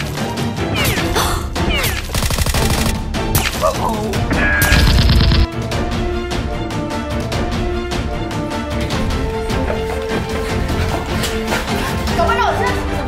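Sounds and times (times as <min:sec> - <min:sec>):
background music: 0:00.0 - 0:13.0
gunfire: 0:01.8 - 0:03.6, 0:04.4 - 0:05.5.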